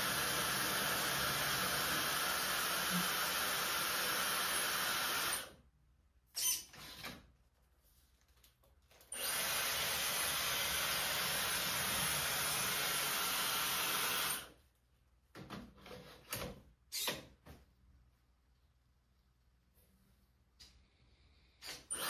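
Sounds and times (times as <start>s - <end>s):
hair dryer blowing with whine: 0.0s - 5.5s.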